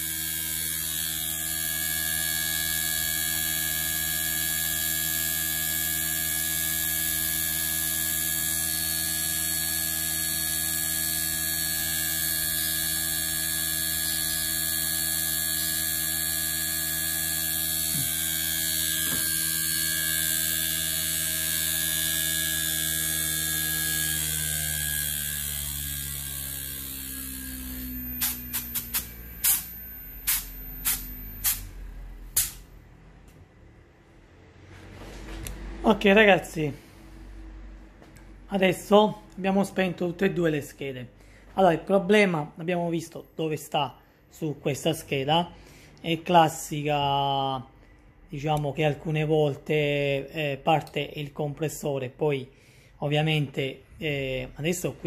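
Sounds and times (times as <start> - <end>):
motor winding down: 0.0 - 32.8
electric hum and whine: 0.0 - 41.0.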